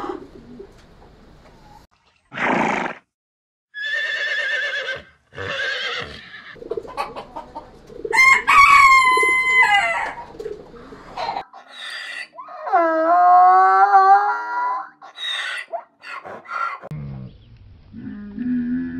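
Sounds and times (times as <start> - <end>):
horse snorting: 2.3 - 3.0, 5.0 - 6.6
horse whinnying: 2.3 - 3.0, 3.8 - 6.6
rooster crowing: 8.1 - 10.2.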